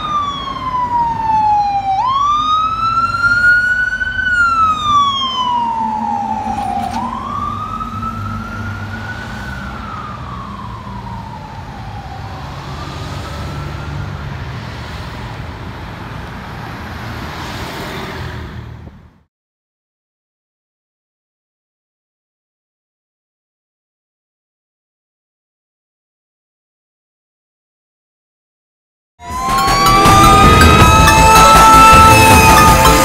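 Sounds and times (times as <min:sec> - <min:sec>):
fire engine siren wailing: 0:00.0 - 0:15.0, 0:29.2 - 0:33.0
traffic rumble: 0:00.0 - 0:19.2.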